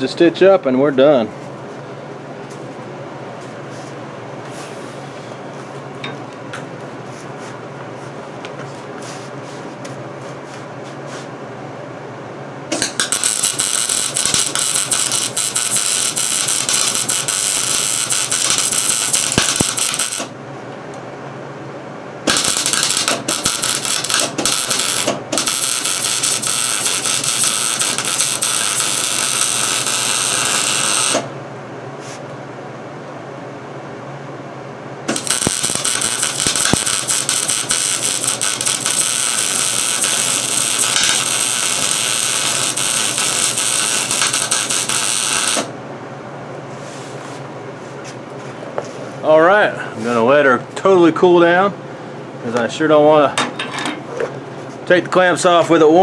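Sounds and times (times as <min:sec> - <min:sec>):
arc welder crackling sizzle: 0:12.7 - 0:20.4, 0:22.2 - 0:31.4, 0:35.0 - 0:45.8.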